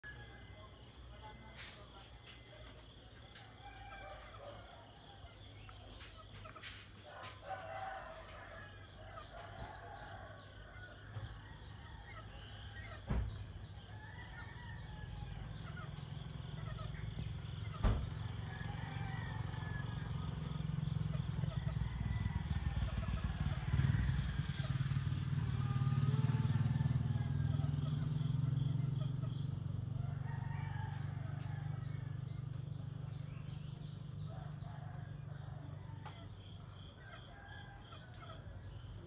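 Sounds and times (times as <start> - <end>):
insects chirping: 0.0 - 39.0
rooster crowing: 3.2 - 5.4, 7.0 - 15.7, 18.1 - 38.9.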